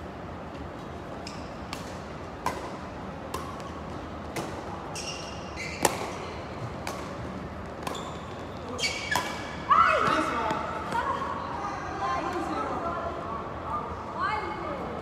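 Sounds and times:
shoe squeak: 0:04.9 - 0:06.5, 0:07.9 - 0:09.6.

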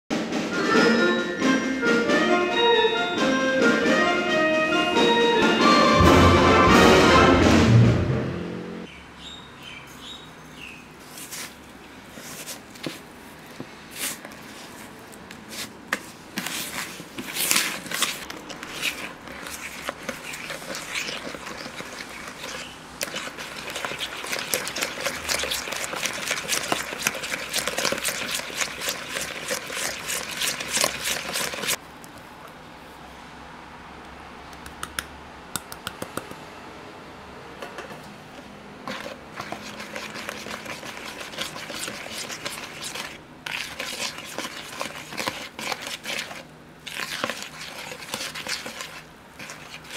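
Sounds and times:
upbeat music: 0:00.2 - 0:08.8
whisk clattering in mixing bowl: 0:17.4 - 0:31.8, 0:38.9 - 0:49.9.

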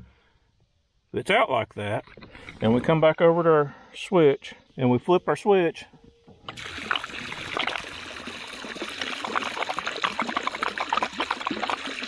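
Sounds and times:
water jetting and splashing into lake: 0:06.5 - 0:12.0.

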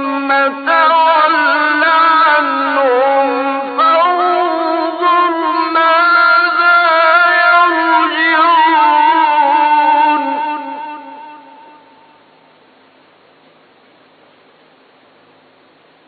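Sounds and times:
man reciting melodically: 0:00.0 - 0:12.1.

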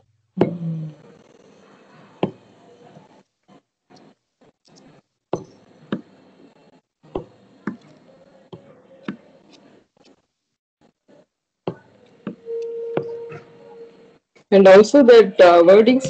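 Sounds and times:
steady tone: 0:12.3 - 0:14.2.

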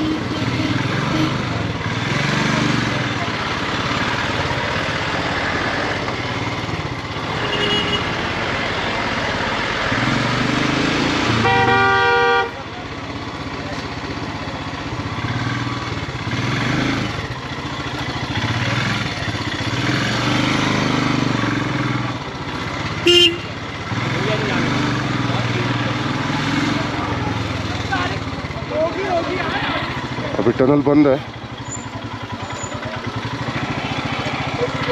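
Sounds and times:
vehicle horn: 0:00.0 - 0:01.7, 0:07.3 - 0:08.3, 0:11.3 - 0:12.7, 0:23.0 - 0:23.6
motorcycle engine running: 0:00.0 - 0:34.9.

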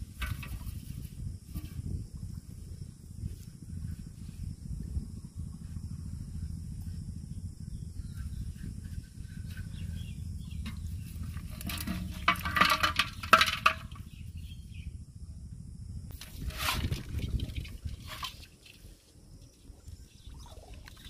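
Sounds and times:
low rumble of water: 0:00.0 - 0:21.0
fish rattling into metal pot: 0:10.6 - 0:14.0.

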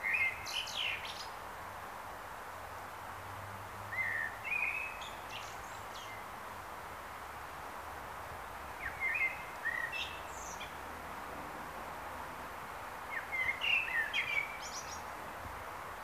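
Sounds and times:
blackbird singing: 0:00.0 - 0:01.3, 0:03.9 - 0:06.2, 0:08.8 - 0:10.8, 0:13.1 - 0:15.1
steady background hiss: 0:00.0 - 0:16.0.

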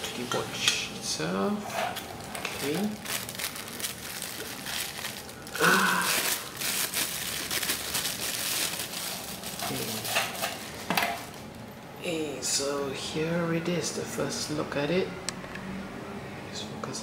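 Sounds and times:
plastic wrapping crinkling: 0:01.8 - 0:11.6.

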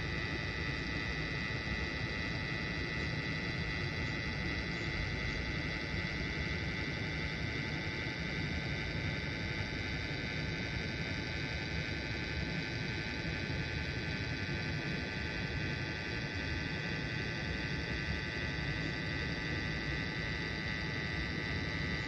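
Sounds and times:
background hum and hiss: 0:00.0 - 0:22.0
high-pitched whine: 0:00.0 - 0:22.0.

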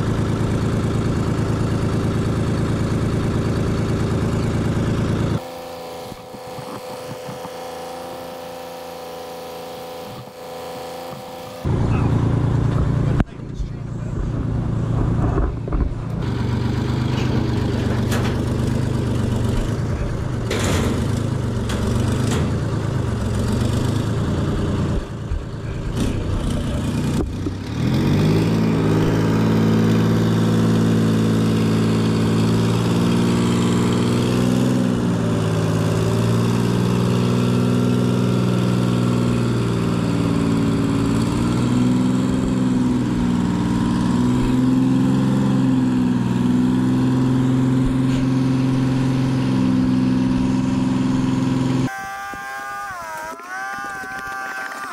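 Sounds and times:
diesel engine idling: 0:00.0 - 0:37.4.

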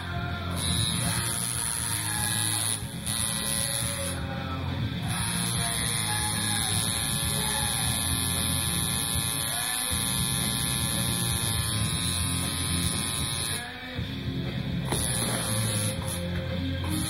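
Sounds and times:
tattoo machine buzzing: 0:00.0 - 0:13.8, 0:14.8 - 0:17.0
background music: 0:00.0 - 0:17.0.

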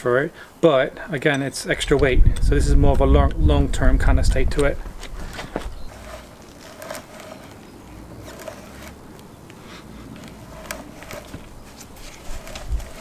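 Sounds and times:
auger bit scraping into wood: 0:04.0 - 0:13.0.

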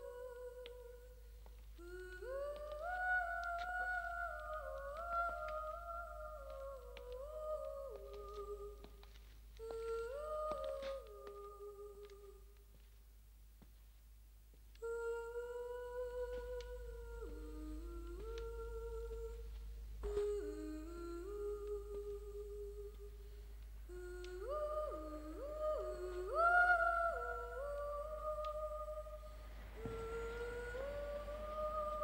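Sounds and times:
click: 0:00.6 - 0:00.8.

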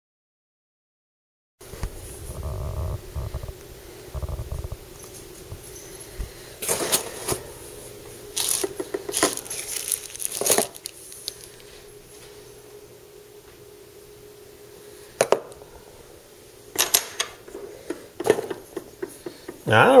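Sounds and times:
plastic wrapping crinkling: 0:08.3 - 0:11.8
cardboard box rustling: 0:08.4 - 0:11.4.

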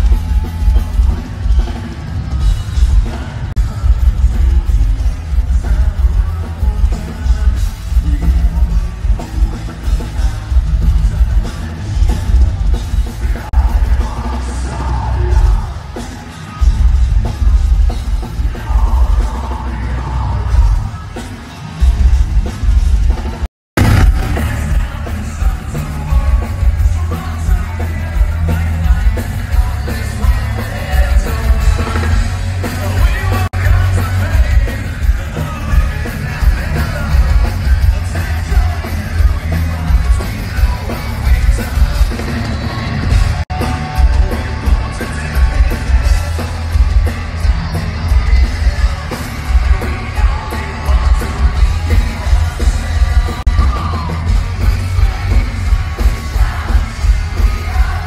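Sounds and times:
live metal band playing: 0:00.0 - 0:58.0
person singing: 0:23.8 - 0:58.0.

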